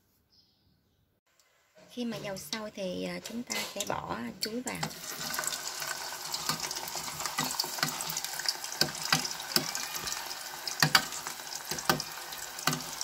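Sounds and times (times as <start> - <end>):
food sizzling in hot oil: 3.6 - 13.0
oil popping: 3.8 - 13.0
metal ladle knocking on pot: 8.8 - 10.2, 10.8 - 13.0.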